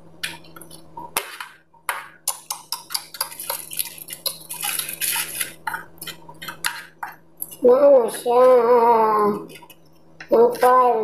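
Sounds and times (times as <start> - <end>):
aluminium foil crinkling: 3.1 - 6.2.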